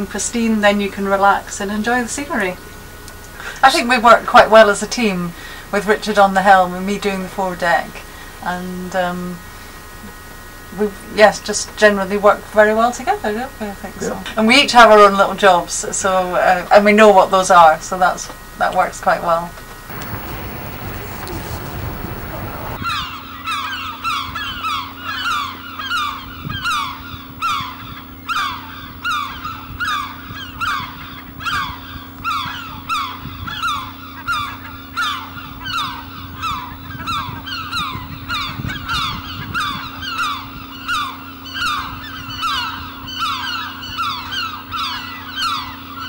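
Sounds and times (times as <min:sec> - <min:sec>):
geese honking: 0:19.9 - 0:22.8
steady low hum: 0:19.9 - 0:22.8.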